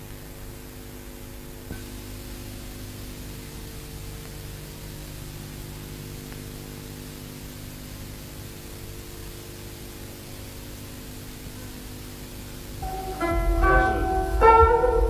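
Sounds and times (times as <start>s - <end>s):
recording hiss: 0.0s - 15.0s
low many-toned hum: 12.4s - 15.0s.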